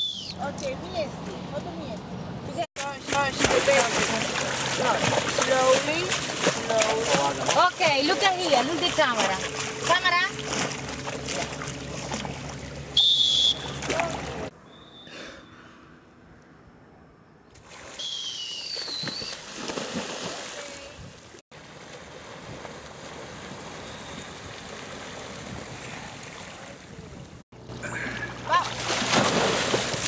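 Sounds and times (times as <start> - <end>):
dolphin whistles: 0.0 - 0.4, 13.0 - 13.9, 14.6 - 15.6, 17.9 - 19.4
water splashing and rushing: 2.8 - 14.5, 18.8 - 27.4, 28.1 - 30.0.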